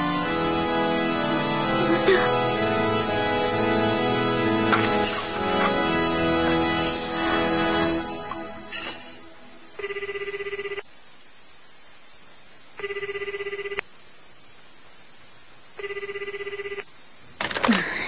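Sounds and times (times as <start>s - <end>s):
telephone ringback tone: 9.8s - 10.8s, 12.8s - 13.8s, 15.8s - 16.8s.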